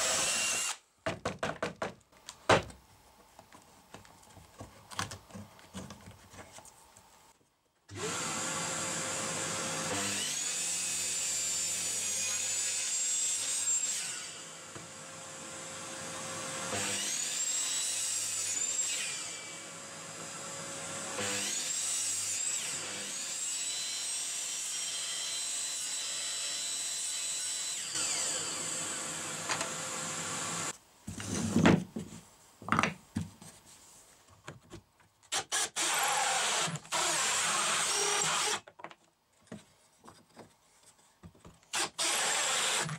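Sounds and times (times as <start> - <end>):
cordless drill with hole saw: 0.0 - 0.8, 7.9 - 30.8, 35.3 - 38.7, 41.7 - 42.9
miter saw cutting: 0.0 - 0.8, 35.4 - 38.6, 41.7 - 42.9.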